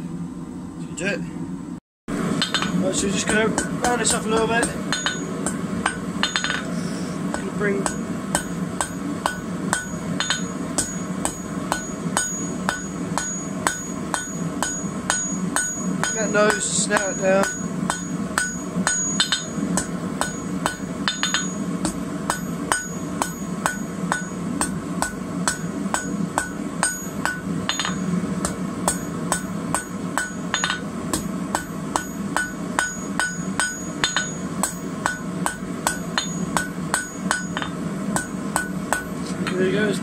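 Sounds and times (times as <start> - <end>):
low hum: 0.0 - 40.0
hammer striking metal on anvil: 2.3 - 39.6.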